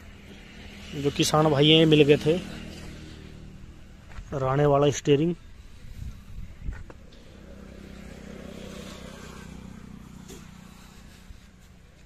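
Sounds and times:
low engine hum: 0:05.3 - 0:12.0.

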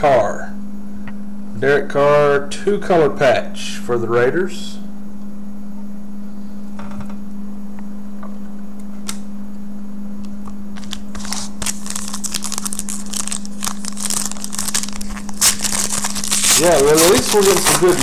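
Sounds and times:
steady low hum: 0:00.0 - 0:18.0
wrapper crinkling and tearing: 0:10.8 - 0:18.0.

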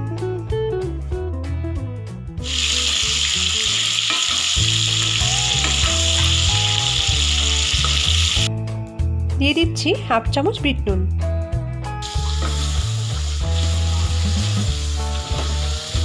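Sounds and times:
food sizzling in hot oil: 0:02.4 - 0:08.5, 0:12.0 - 0:16.0.

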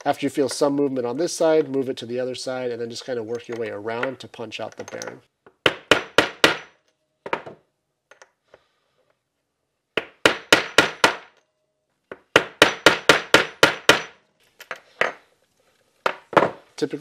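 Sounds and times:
hammer striking metal punch: 0:05.6 - 0:07.5, 0:10.0 - 0:11.4, 0:12.1 - 0:14.2.

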